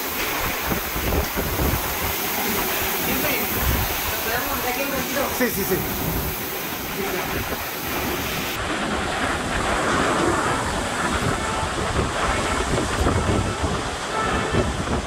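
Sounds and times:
strong wind through trees: 0.0 - 15.0
wind rumble on microphone: 0.0 - 15.0.

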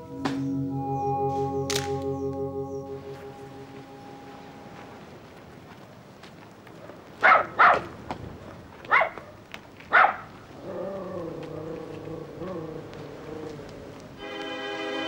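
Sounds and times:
music with long held notes: 0.0 - 5.1, 14.2 - 15.0
dog barking: 7.2 - 7.9, 8.9 - 10.3.

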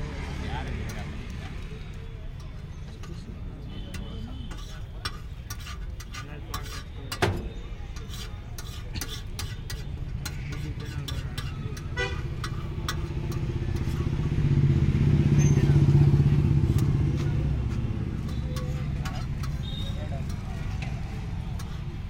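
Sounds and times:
street traffic: 0.0 - 22.0
grater rasping over cheese: 4.5 - 7.0, 8.0 - 11.9
motorcycle engine: 11.9 - 22.0.

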